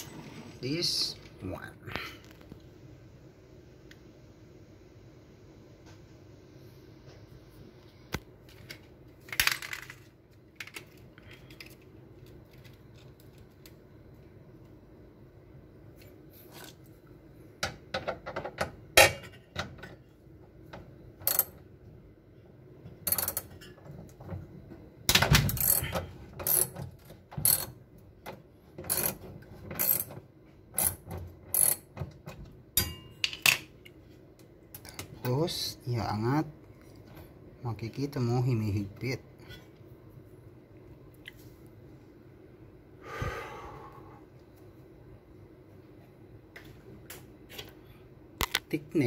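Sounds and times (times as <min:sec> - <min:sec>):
wrench clicking on metal bolts: 0:23.1 - 0:23.5, 0:30.8 - 0:31.8.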